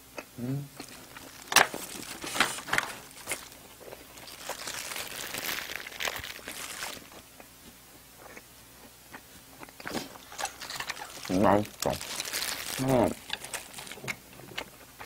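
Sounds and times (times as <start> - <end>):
paper tissue rustling: 0.8 - 7.2, 9.9 - 14.0.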